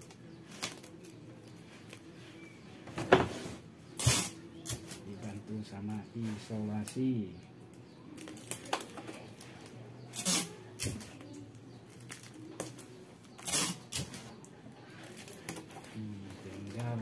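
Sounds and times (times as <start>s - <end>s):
adhesive tape ripping off roll: 4.0s - 4.9s, 10.1s - 11.1s, 13.3s - 14.4s
cellophane rustling and clicks: 8.1s - 14.4s.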